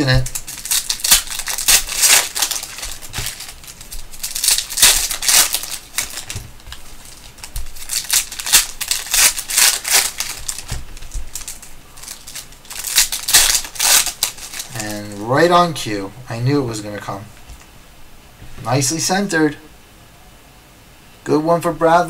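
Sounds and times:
foil wrapper crinkling and tearing: 0.0s - 15.5s.

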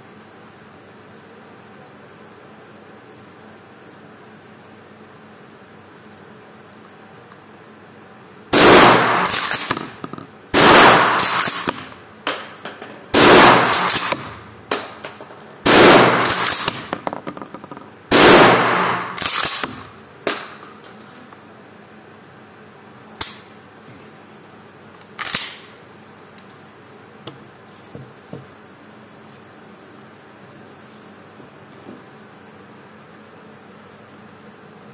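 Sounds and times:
shotgun shots indoors: 8.5s - 17.2s, 18.1s - 20.6s.

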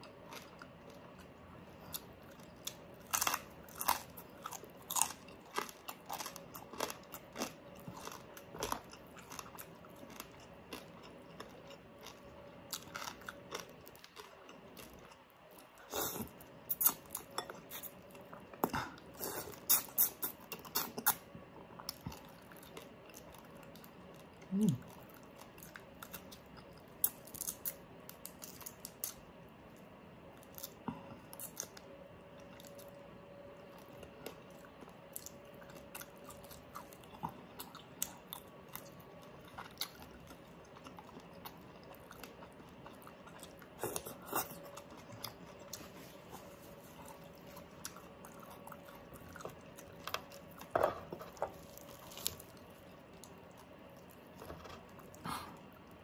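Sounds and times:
chewing and crunching: 0.0s - 56.0s
person humming: 24.5s - 24.8s.

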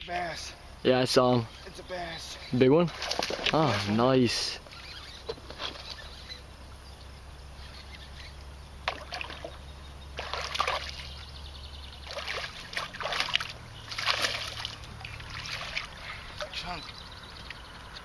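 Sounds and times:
steady low hum: 0.0s - 18.0s
water splashing and sloshing: 1.7s - 6.3s, 8.8s - 11.3s, 11.9s - 18.0s.

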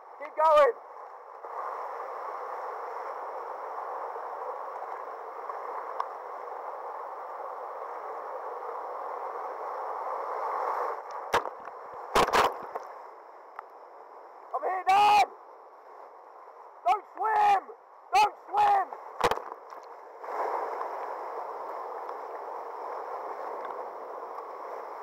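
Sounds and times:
waves splashing and knocking: 10.9s - 12.9s, 18.6s - 21.2s.

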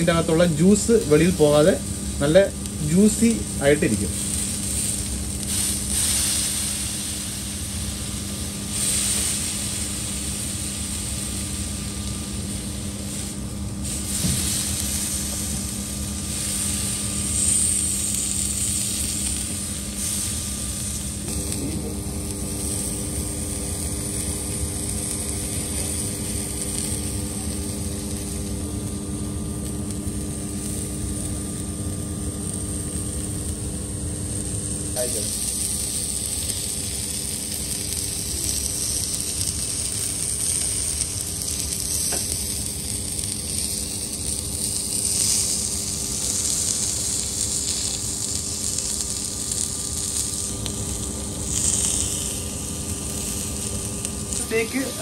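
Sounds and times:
steak sizzling on griddle: 0.0s - 55.0s
mechanical drone: 13.2s - 55.0s.

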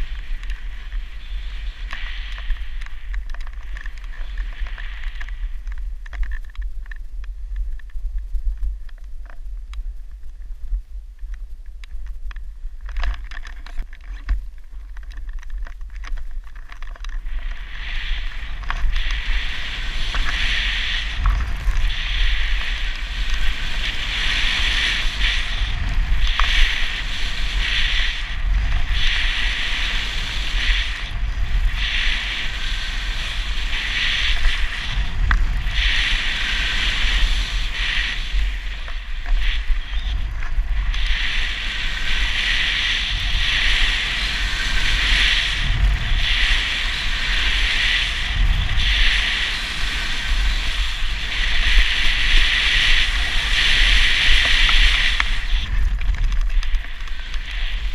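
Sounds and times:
snowboard sliding over snow: 0.0s - 6.8s, 14.2s - 57.9s
wind buffeting microphone: 14.2s - 57.9s.

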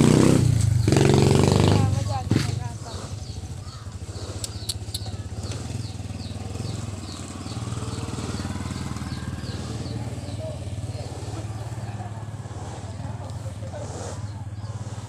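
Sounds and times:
small engine idling: 0.0s - 15.0s
sharp clicks: 4.4s - 5.6s.

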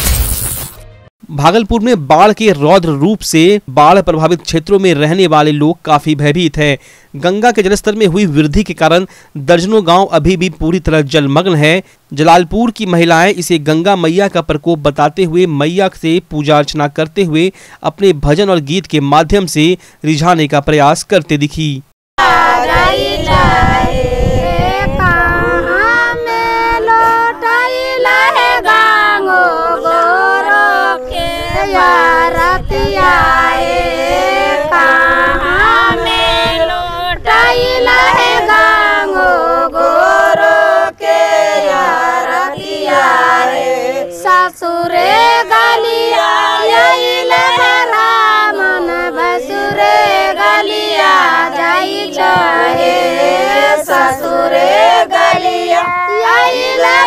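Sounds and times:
women singing together: 22.2s - 57.0s.

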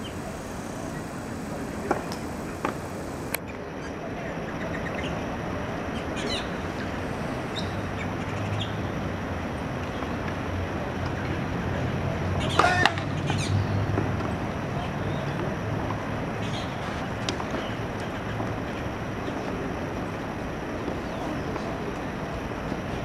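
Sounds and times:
low hum: 0.0s - 3.4s.

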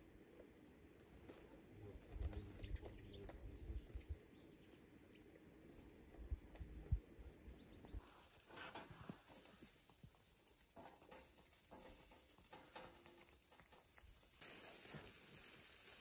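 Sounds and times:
small birds chirping: 1.8s - 8.5s.

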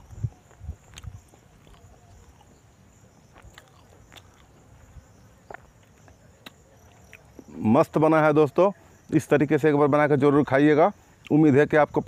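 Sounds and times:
person chewing food: 0.1s - 2.7s, 3.3s - 7.5s.

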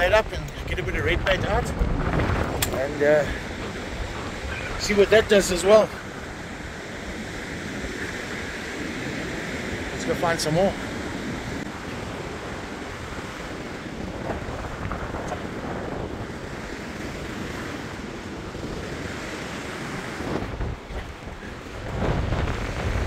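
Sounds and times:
ocean surf breaking on beach: 0.0s - 23.0s
wind buffeting microphone: 0.0s - 23.0s.

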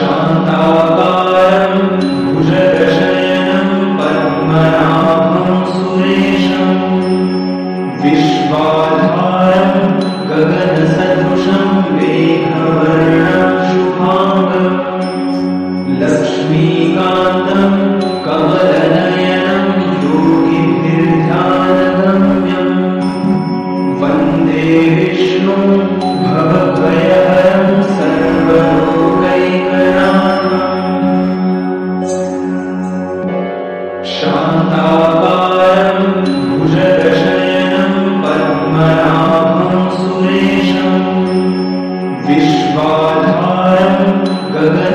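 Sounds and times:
person chanting a mantra: 0.0s - 33.4s, 34.0s - 44.9s
steady drone: 0.0s - 44.9s.

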